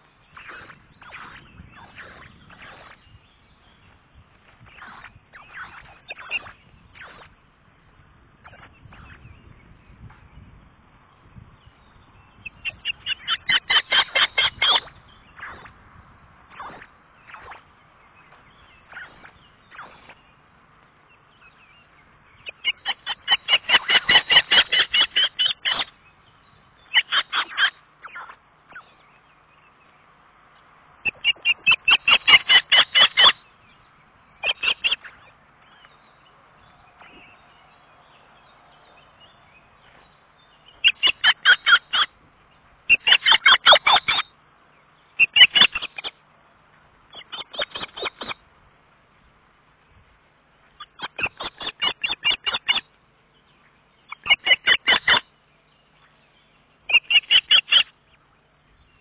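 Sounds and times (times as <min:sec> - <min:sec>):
osprey chirping calls: 0:00.0 - 0:10.4, 0:11.3 - 0:15.8, 0:16.5 - 0:29.9, 0:31.0 - 0:46.2, 0:47.1 - 0:48.4, 0:50.6 - 0:59.0.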